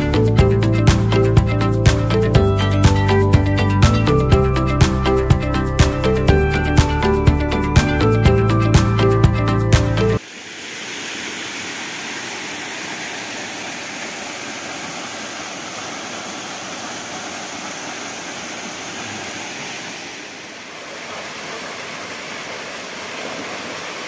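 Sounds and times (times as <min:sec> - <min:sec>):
background music: 0:00.0 - 0:10.2
waterfall pouring into pool: 0:10.2 - 0:24.0.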